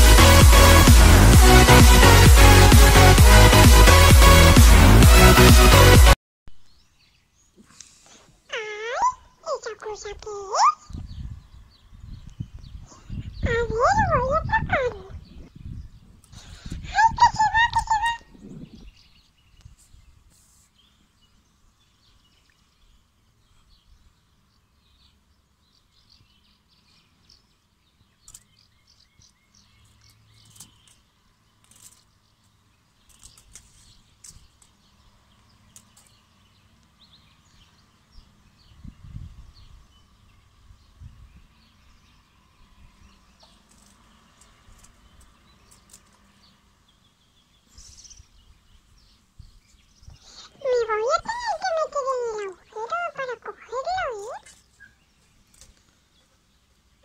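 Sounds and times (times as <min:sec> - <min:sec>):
faint bird chirps: 0:44.7 - 0:56.4.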